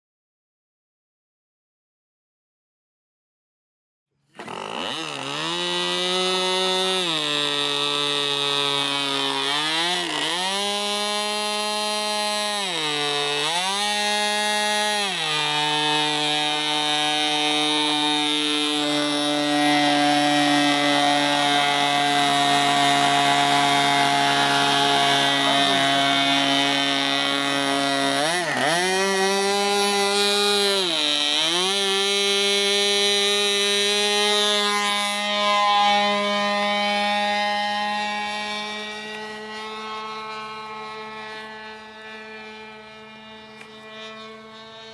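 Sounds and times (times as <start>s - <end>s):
model aircraft engine revving: 4.2s - 44.9s.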